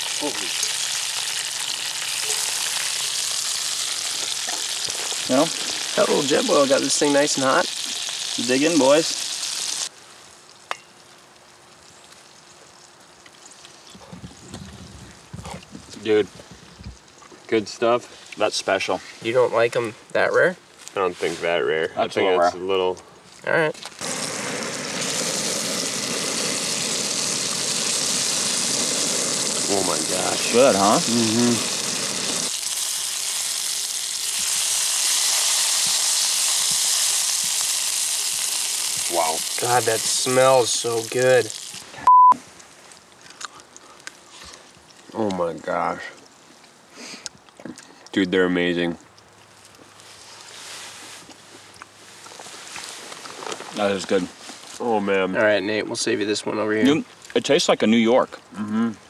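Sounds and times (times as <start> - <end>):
meat sizzling in a pan: 0.0 - 13.8, 24.0 - 42.0.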